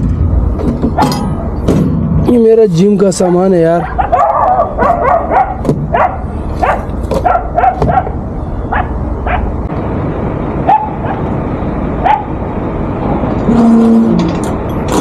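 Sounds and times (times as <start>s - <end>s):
low engine rumble: 0.0s - 15.0s
dogs barking and yelping: 0.9s - 1.6s, 3.2s - 9.6s, 10.6s - 11.3s, 12.0s - 12.4s.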